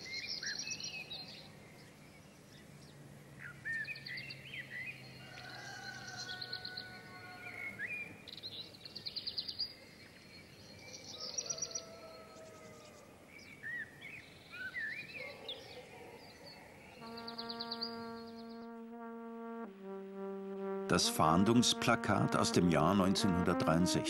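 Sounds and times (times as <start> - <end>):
songbirds trilling: 0.0 - 18.8
faint outdoor hiss: 0.0 - 24.0.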